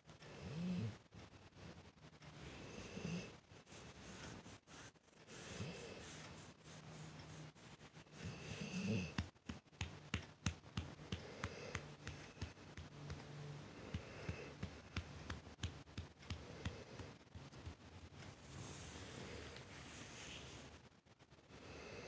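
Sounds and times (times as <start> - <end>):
hand rustling dog fur: 3.6 - 20.8
dog breathing slowly: 10.9 - 12.6.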